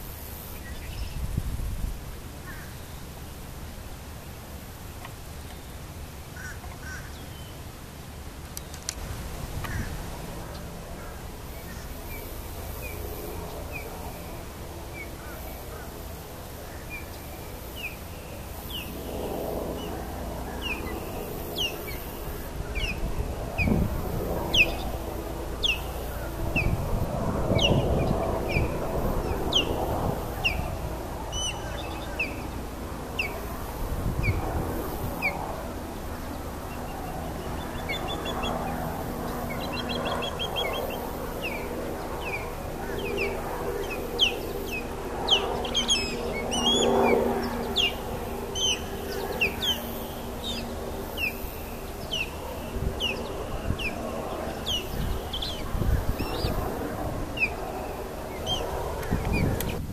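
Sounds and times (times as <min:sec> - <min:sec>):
osprey whistled chirps: 0:39.5 - 0:47.0, 0:47.6 - 0:52.4.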